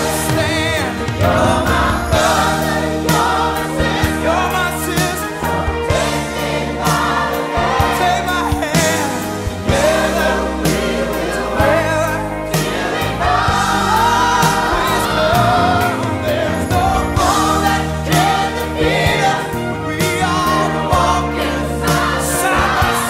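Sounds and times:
band playing: 0.0s - 23.0s
choir singing gospel song: 0.0s - 23.0s
steady drum beat: 0.0s - 23.0s.

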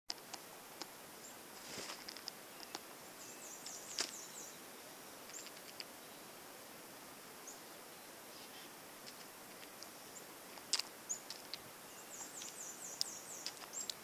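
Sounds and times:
distant small birds chirping: 0.1s - 14.0s
faint sharp clicks: 12.2s - 14.0s.

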